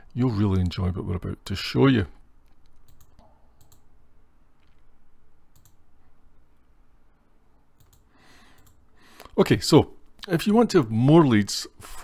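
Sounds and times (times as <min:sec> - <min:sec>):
low steady hum: 0:00.0 - 0:12.0
computer mouse clicks: 0:02.4 - 0:03.9, 0:05.5 - 0:05.8, 0:07.8 - 0:08.8.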